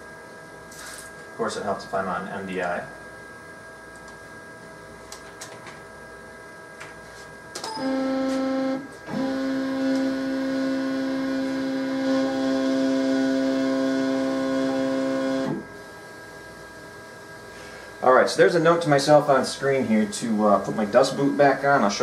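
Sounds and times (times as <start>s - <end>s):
stepper motor whining: 7.8s - 15.7s.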